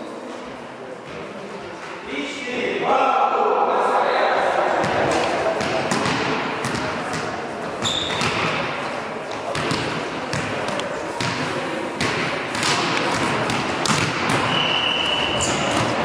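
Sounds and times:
volleyballs bouncing on wooden floor: 0:04.8 - 0:08.7, 0:09.3 - 0:14.6.

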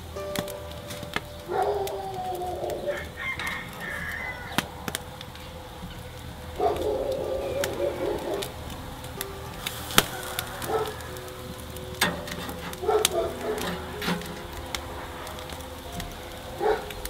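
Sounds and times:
rooster crowing: 0:01.5 - 0:05.0, 0:06.6 - 0:15.8.

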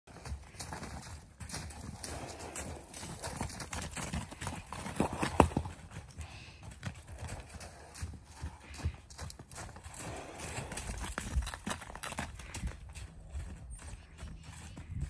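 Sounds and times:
hoofbeats on snowy ground: 0:00.1 - 0:15.0.

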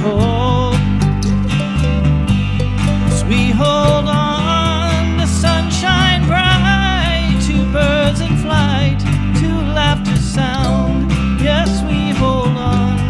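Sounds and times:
electric bass: 0:00.0 - 0:13.0
mandolin: 0:00.0 - 0:13.0
strummed acoustic guitar: 0:00.0 - 0:13.0.

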